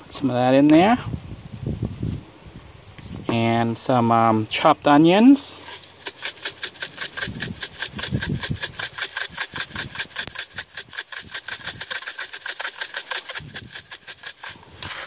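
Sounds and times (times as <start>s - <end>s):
spice shaker rattling: 5.7s - 15.0s.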